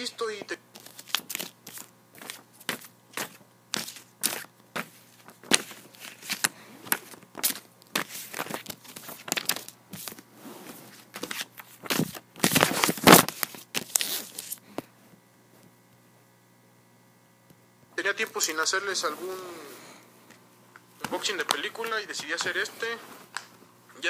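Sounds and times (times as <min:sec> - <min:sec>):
plastic disc case handled: 0:00.7 - 0:10.3, 0:10.9 - 0:14.9, 0:21.0 - 0:23.6.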